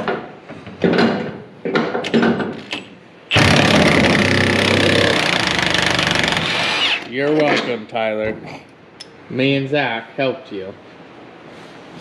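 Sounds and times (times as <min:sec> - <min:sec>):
impact wrench hammering: 0:03.3 - 0:07.1.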